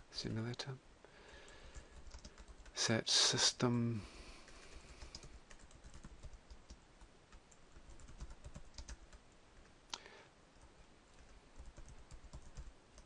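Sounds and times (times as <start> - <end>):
keyboard typing clicks: 1.7 - 2.7, 4.6 - 6.8, 7.4 - 9.1.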